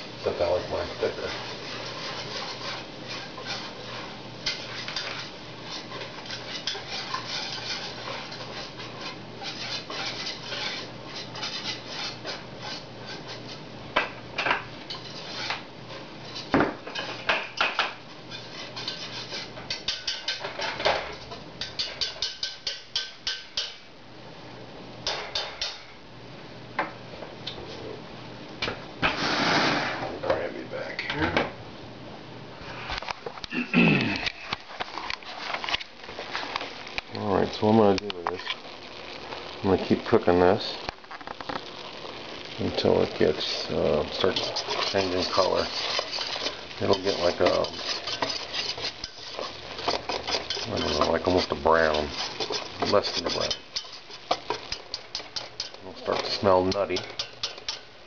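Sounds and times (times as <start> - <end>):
metal utensil scraping saucepan: 0.9 - 13.6, 14.9 - 20.9, 42.4 - 57.9.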